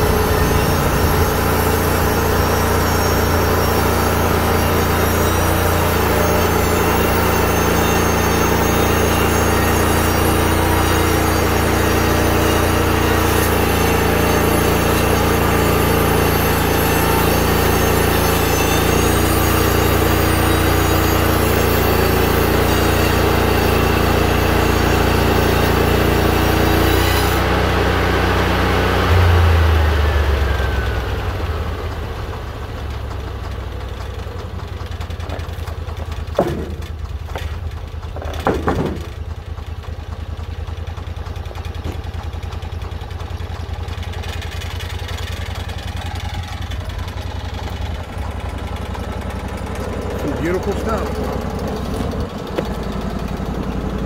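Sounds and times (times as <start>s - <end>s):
sawmill engine running: 0.0s - 54.0s
sharp knocks: 36.3s - 37.6s, 38.2s - 39.3s.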